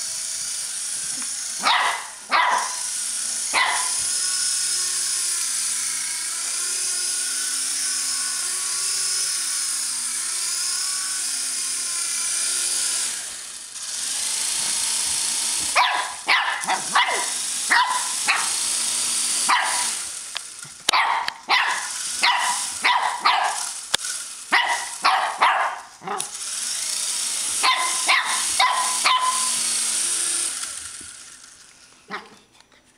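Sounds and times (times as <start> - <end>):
toy helicopter motor whine: 0.0 - 32.1
puppy barking: 1.6 - 2.8, 3.5 - 4.0, 15.7 - 18.6, 19.4 - 20.0, 20.9 - 23.8, 24.5 - 26.3, 27.6 - 29.6, 32.1 - 32.4.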